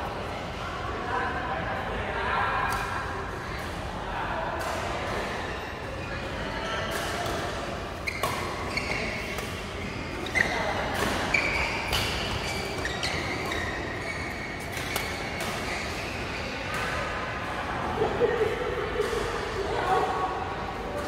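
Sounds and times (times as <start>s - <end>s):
shoes squeaking on court floor: 5.1s - 17.0s
badminton rackets hitting shuttlecock: 10.3s - 14.0s.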